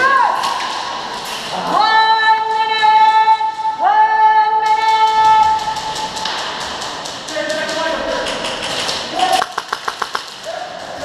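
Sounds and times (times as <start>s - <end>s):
airsoft guns firing: 9.2s - 10.5s.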